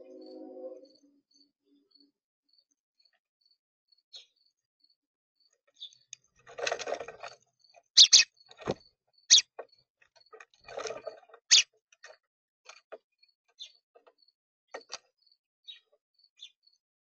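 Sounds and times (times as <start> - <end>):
faint high chirps: 0.0 - 2.2, 8.0 - 8.3
beaks pecking feeder: 5.8 - 9.6, 10.3 - 11.6.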